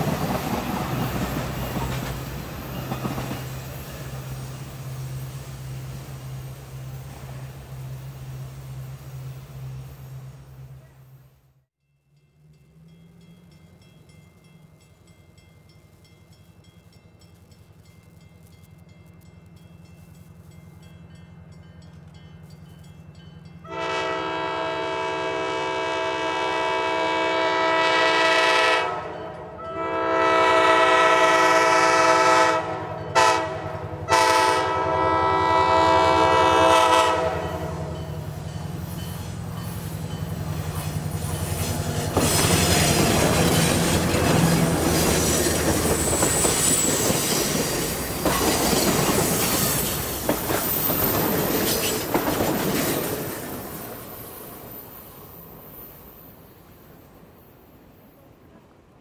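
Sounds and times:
train wheels clattering: 0:00.0 - 0:04.8, 0:38.0 - 0:54.9
diesel locomotive rumble: 0:00.0 - 0:54.6
train air horn: 0:23.6 - 0:38.2
faint high wheel squeal: 0:45.9 - 0:48.5.

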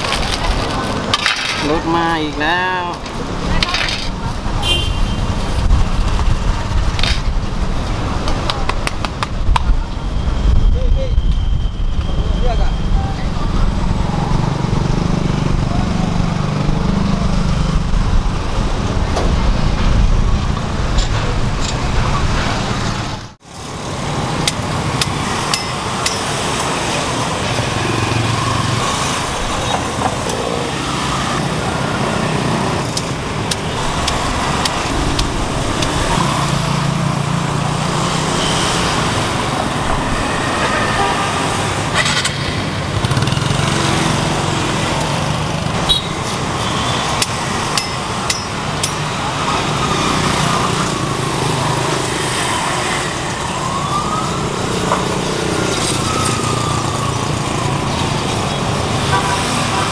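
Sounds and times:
hum of passing vehicles: 0:12.1 - 0:59.9.

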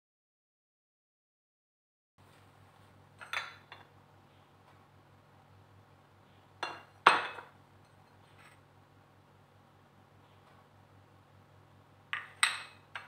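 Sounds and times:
faint low hum: 0:02.2 - 0:13.0
glass and ceramic dishes clinking: 0:03.2 - 0:03.9, 0:06.6 - 0:08.2, 0:12.2 - 0:13.0.

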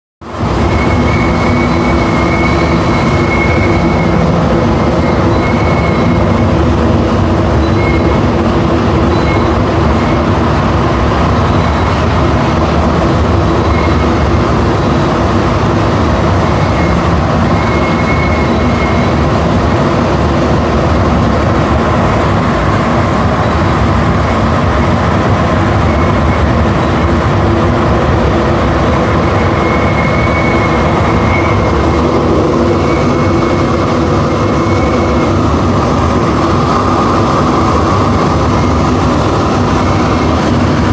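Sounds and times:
metro train rumble and hiss: 0:00.2 - 0:40.9
thin high whistle: 0:00.8 - 0:04.2, 0:05.0 - 0:06.2, 0:29.6 - 0:31.8.

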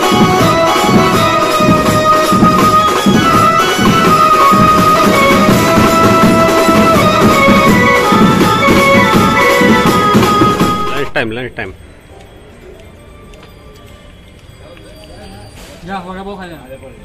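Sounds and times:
pulsing drum beat: 0:00.0 - 0:11.3
keyboard-like lead melody: 0:00.0 - 0:11.6.

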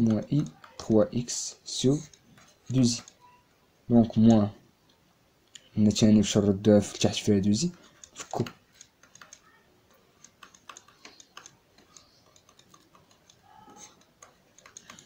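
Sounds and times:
stylus tapping while writing: 0:07.7 - 0:15.0.

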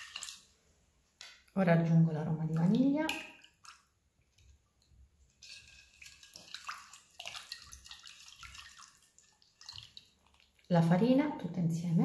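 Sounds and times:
spoon stirring liquid in bowl: 0:00.0 - 0:00.6, 0:02.3 - 0:10.8.

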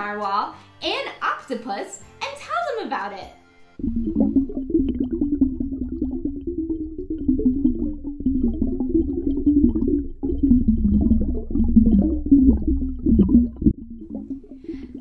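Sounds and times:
low underwater rumble: 0:03.8 - 0:15.0
water bubbling and gurgling: 0:03.8 - 0:15.0.

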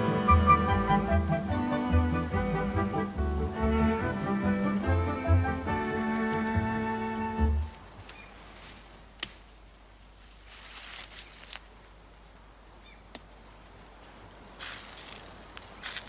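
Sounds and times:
bowed string music: 0:00.0 - 0:08.0
short hissing rustle: 0:14.6 - 0:16.0.

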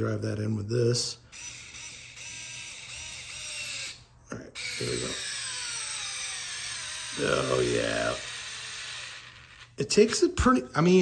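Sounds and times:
electric screwdriver motor whirring: 0:01.3 - 0:04.0, 0:04.6 - 0:09.8.

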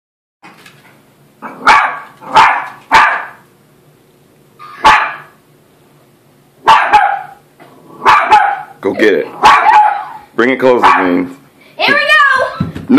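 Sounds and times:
small dog barking: 0:01.4 - 0:03.4, 0:04.8 - 0:05.4, 0:06.6 - 0:07.4, 0:08.0 - 0:10.2, 0:10.8 - 0:11.2.

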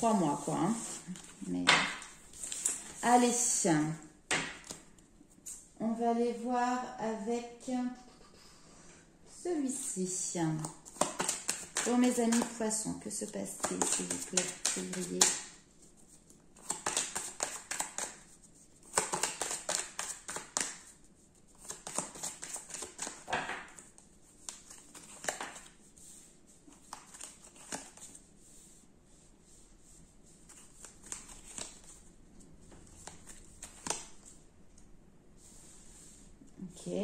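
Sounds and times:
cards being shuffled: 0:00.3 - 0:03.3, 0:10.6 - 0:15.4, 0:16.0 - 0:25.7, 0:26.6 - 0:28.2, 0:30.4 - 0:34.4.

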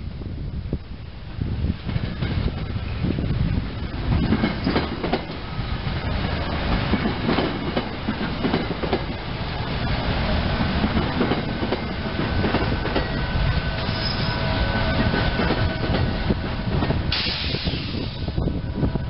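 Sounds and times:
train wheels rumbling on rail: 0:00.0 - 0:19.0
wheels clacking over rail joints: 0:03.9 - 0:05.5, 0:06.1 - 0:17.1.

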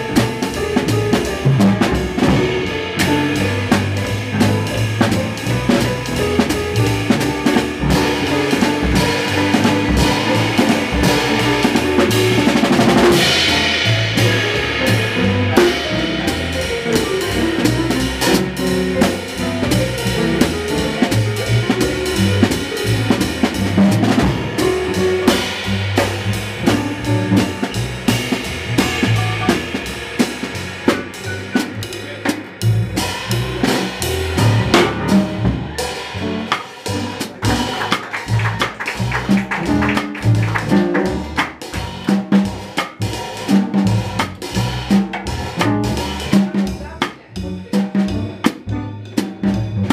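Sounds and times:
jazz drums played with sticks: 0:00.0 - 0:49.9
walking double bass: 0:00.0 - 0:49.9
cymbal crash: 0:07.9 - 0:18.3.

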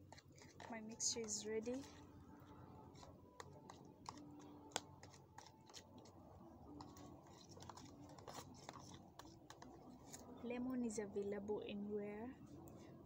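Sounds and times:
utensil stirring in plastic tub: 0:00.0 - 0:10.4.

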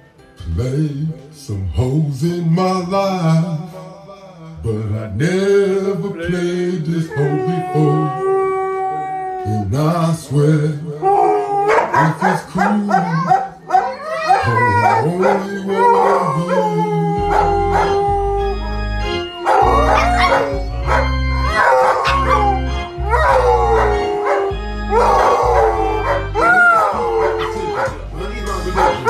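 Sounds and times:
music with low sustained notes: 0:04.6 - 0:29.0
dogs howling: 0:06.2 - 0:09.8, 0:11.0 - 0:29.0.

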